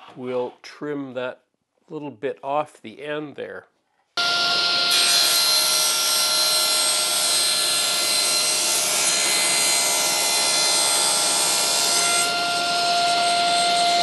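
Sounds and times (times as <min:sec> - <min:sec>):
table saw cutting plywood: 0:04.2 - 0:14.0.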